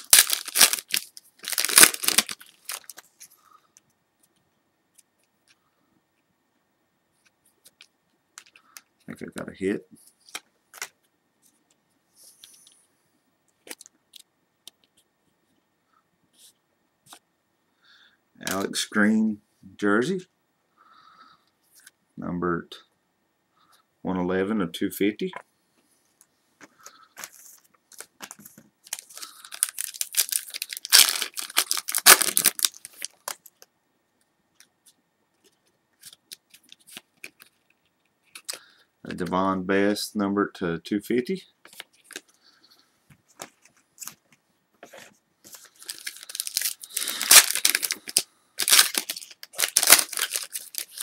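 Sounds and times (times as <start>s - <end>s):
wrapper tearing and crinkling: 0.0s - 3.1s, 27.9s - 33.6s, 45.5s - 51.0s.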